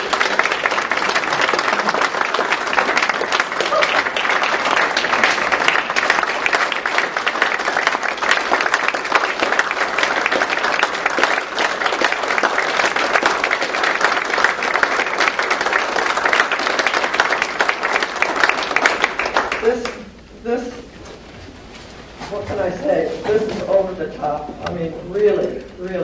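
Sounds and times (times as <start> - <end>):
crowd applauding: 0.0 - 20.0.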